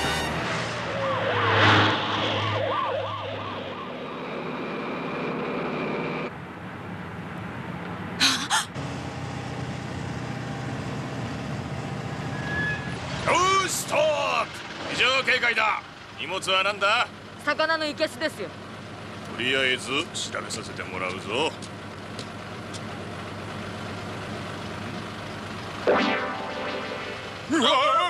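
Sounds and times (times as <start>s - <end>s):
truck engine humming: 0.0s - 28.0s
police siren wailing: 0.8s - 5.0s, 25.8s - 28.0s.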